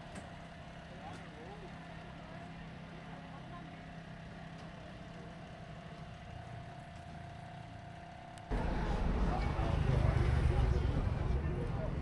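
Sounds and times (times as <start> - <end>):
engine idling with whine: 0.0 - 12.0
loud outdoor rumble: 7.4 - 12.0.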